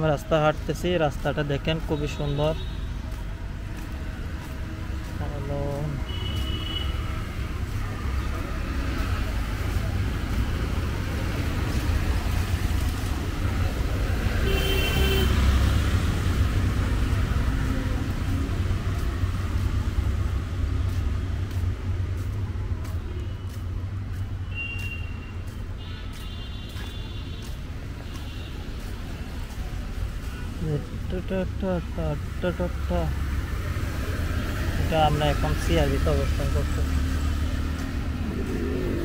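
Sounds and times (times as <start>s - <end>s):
vehicle low rumble: 2.8s - 14.4s, 15.3s - 26.2s, 26.8s - 39.0s
short vehicle horns: 6.0s - 7.1s, 14.4s - 15.6s, 24.4s - 27.4s.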